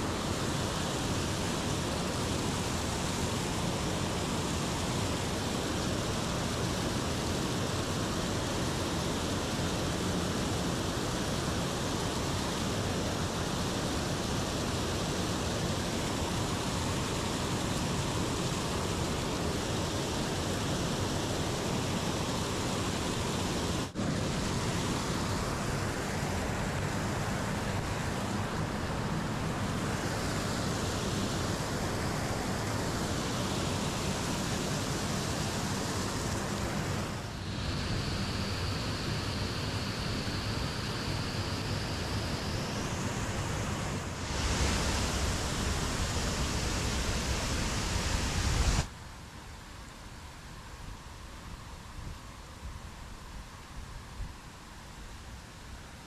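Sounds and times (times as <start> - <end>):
water rushing over weir: 0.0 - 48.9
thin high whine: 21.8 - 48.9.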